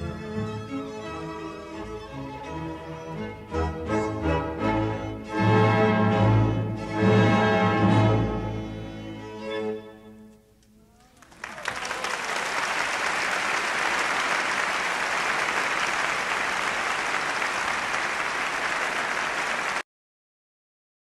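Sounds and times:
string quartet and orchestra chord: 0.0 - 10.1
audience applause: 11.0 - 19.8.

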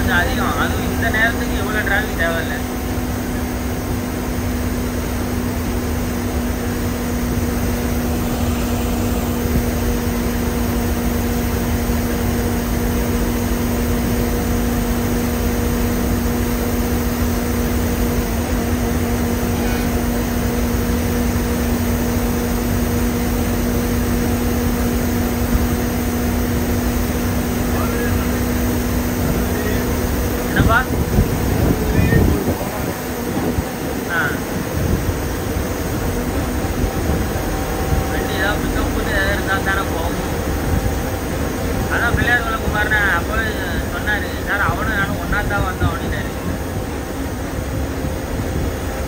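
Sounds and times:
coach cabin drone: 0.0 - 49.0.

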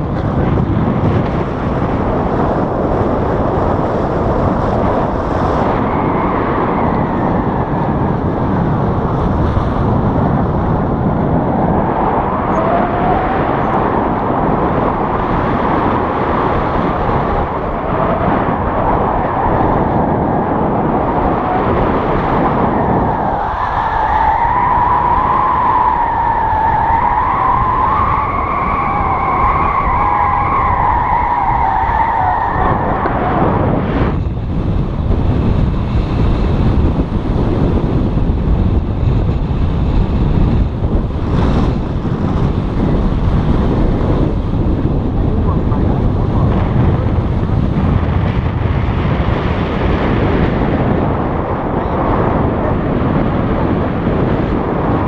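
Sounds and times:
strong wind rushing over microphone: 0.0 - 55.0.

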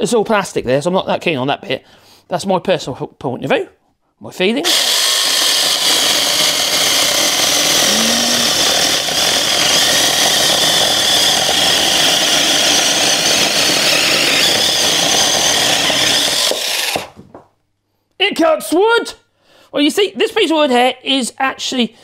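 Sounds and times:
cordless chainsaw cutting wood: 4.6 - 17.2.

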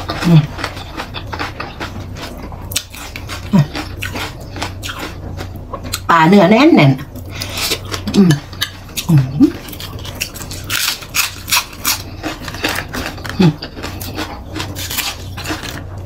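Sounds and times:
chewing and crunching raw vegetable: 0.0 - 16.0.

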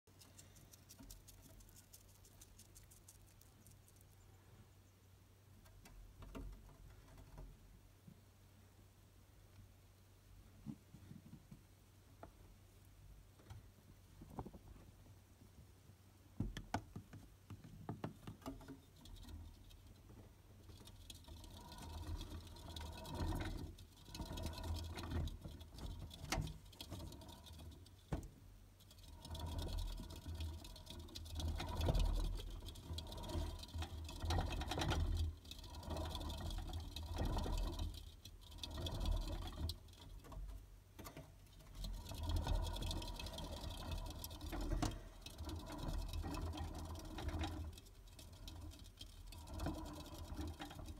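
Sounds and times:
hamster running in plastic wheel: 0.2 - 4.2, 18.0 - 50.9.

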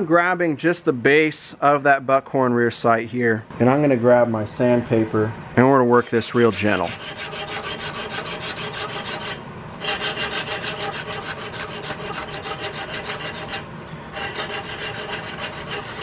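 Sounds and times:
sandpaper rubbing on metal: 5.9 - 16.0.

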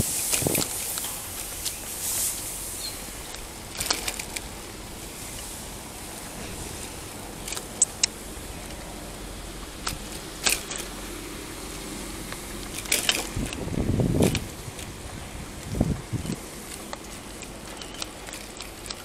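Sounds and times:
bicycle rattling and clicking: 0.0 - 19.0.

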